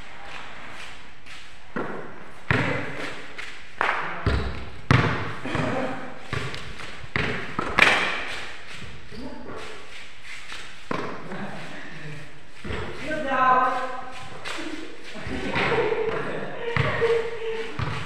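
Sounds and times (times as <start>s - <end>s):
basketball bouncing on concrete: 1.7s - 9.6s, 10.9s - 11.4s, 12.6s - 13.1s, 15.4s - 18.0s
voices calling out: 14.4s - 18.0s.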